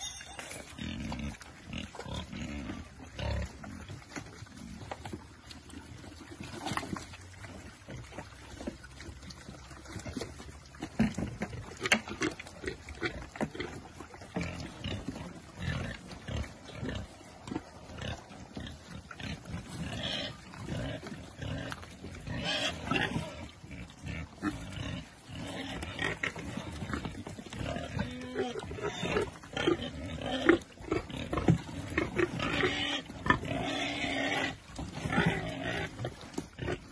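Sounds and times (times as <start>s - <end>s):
pigs grunting and squealing: 0.0s - 4.9s, 10.9s - 36.9s
pigs chewing and rooting: 0.0s - 36.9s.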